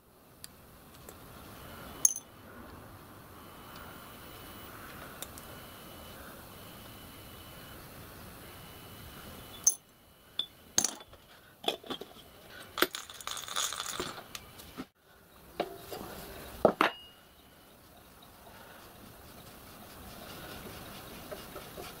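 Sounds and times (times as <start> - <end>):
metal parts clinking on glass: 2.0 - 2.3, 9.5 - 14.2.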